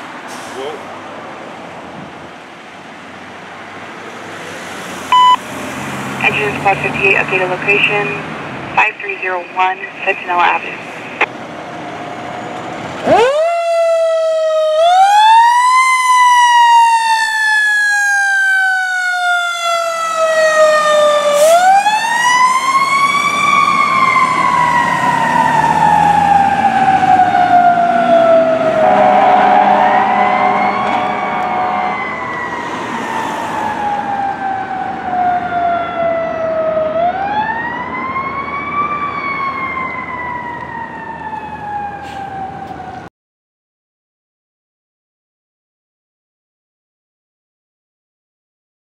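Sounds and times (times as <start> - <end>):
truck engine rumbling: 0.0 - 13.4, 19.8 - 37.3
fire engine siren wailing: 5.1 - 43.1.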